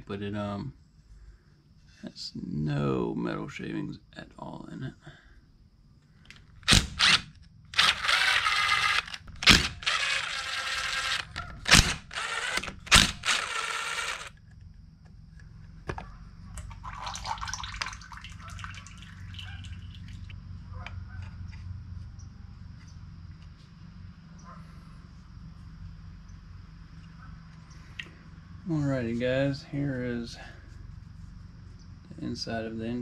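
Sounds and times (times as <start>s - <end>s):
cordless drill backing out screws: 6.6s - 14.4s.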